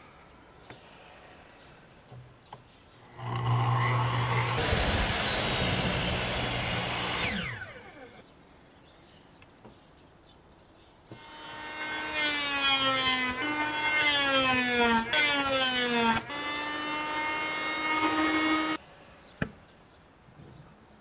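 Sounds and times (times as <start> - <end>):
electric hand planer whining: 3.2 - 8.2, 11.2 - 18.8.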